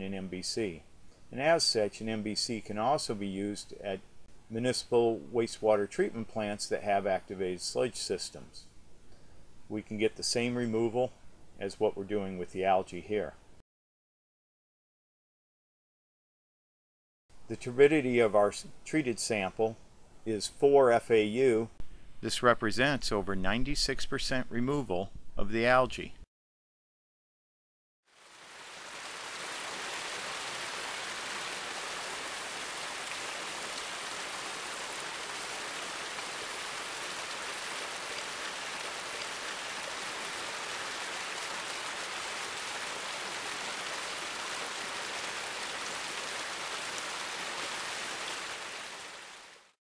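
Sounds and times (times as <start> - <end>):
steady rushing hiss: 28.2 - 49.2.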